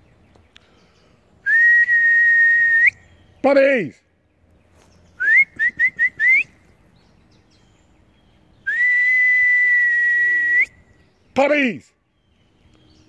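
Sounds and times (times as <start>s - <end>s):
shrill whistle: 1.4s - 3.0s, 5.2s - 6.5s, 8.7s - 10.8s.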